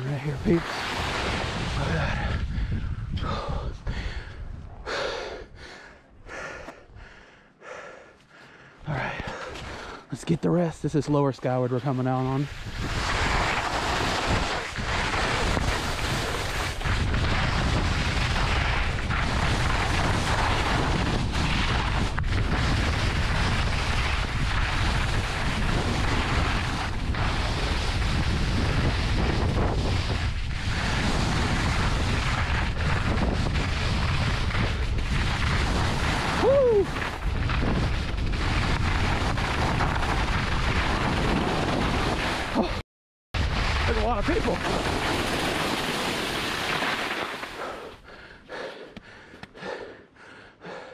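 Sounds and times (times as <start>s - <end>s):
skis sliding over snow: 0.0s - 2.4s, 8.9s - 42.8s, 43.4s - 48.0s
wind buffeting microphone: 0.0s - 5.8s, 12.4s - 42.6s.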